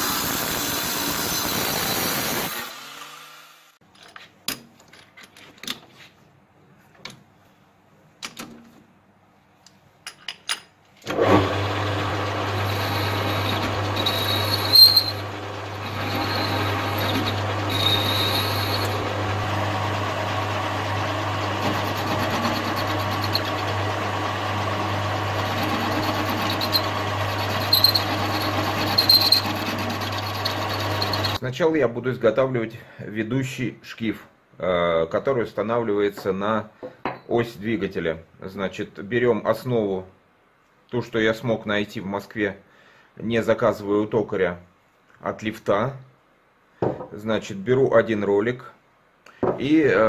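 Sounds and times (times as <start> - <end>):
metal lathe running: 11.2 - 31.4
high-pitched squeaks: 12.8 - 15.2, 25.6 - 31.4.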